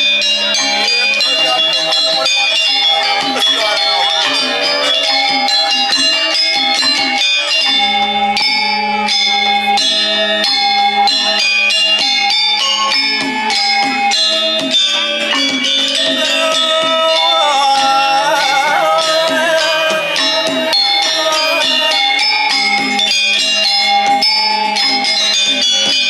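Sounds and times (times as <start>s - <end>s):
metallophones playing quick patterns: 0.0s - 26.0s.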